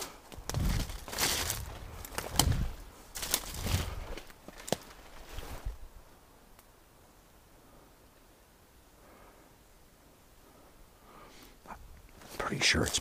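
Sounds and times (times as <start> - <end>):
branch cracking: 0.0 - 5.6
footsteps crunching through brush: 0.0 - 5.8
faint woodland background: 0.0 - 13.0.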